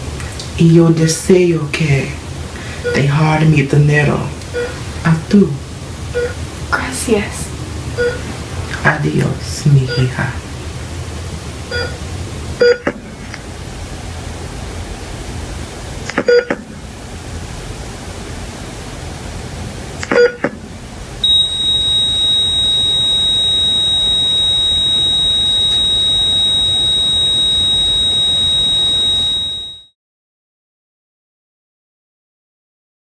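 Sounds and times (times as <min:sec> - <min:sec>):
steady hiss: 0:00.0 - 0:20.0
heart monitor beeping: 0:04.5 - 0:04.8, 0:06.1 - 0:06.4, 0:08.0 - 0:08.2, 0:11.7 - 0:12.0, 0:12.6 - 0:12.9, 0:16.2 - 0:16.6, 0:20.1 - 0:20.4, 0:21.2 - 0:29.9
flatline tone: 0:21.2 - 0:29.9.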